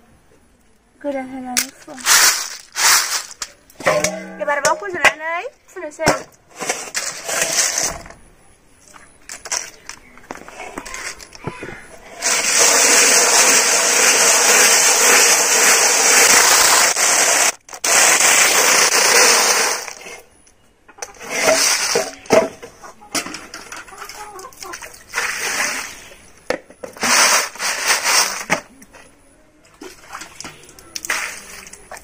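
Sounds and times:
snail shells rattling together: 1.6s - 3.6s
water pouring: 29.8s - 32.0s.

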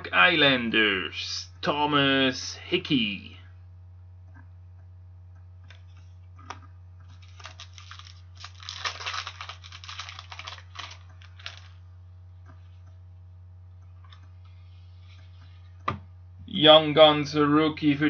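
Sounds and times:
steady low hum: 0.0s - 18.0s
cards shuffled clicks and rustles: 6.0s - 11.8s.

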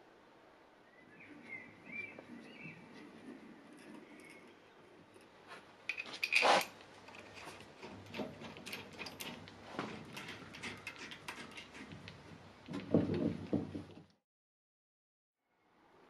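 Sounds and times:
metal tools clinking: 2.9s - 12.0s.

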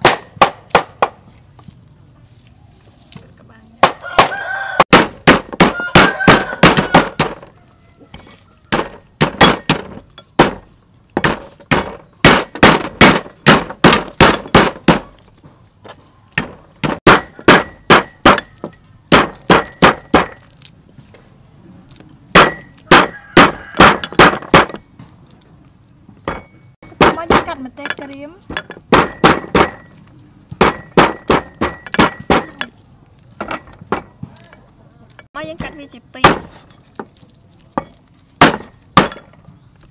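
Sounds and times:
cleaver chopping on wood block: 0.0s - 1.2s, 3.8s - 7.5s, 8.2s - 15.3s, 16.4s - 20.6s, 22.3s - 24.8s, 26.8s - 32.8s, 35.5s - 37.2s, 37.8s - 39.3s.

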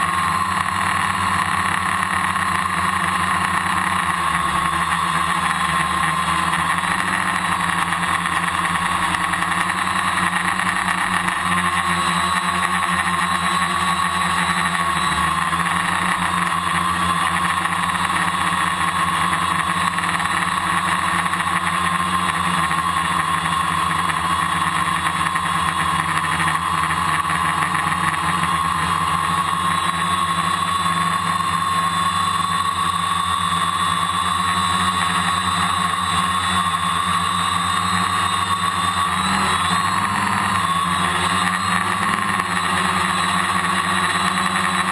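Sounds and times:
drone motors whirring: 0.0s - 44.9s.

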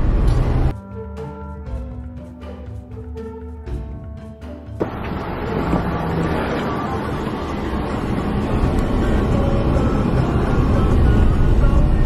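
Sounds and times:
car engine rumble: 0.0s - 0.7s, 4.8s - 12.0s
road noise: 0.0s - 0.7s, 4.8s - 12.0s.

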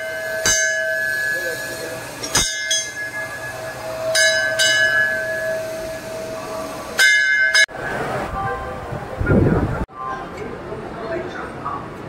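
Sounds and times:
brass bells clanging: 0.0s - 7.7s.

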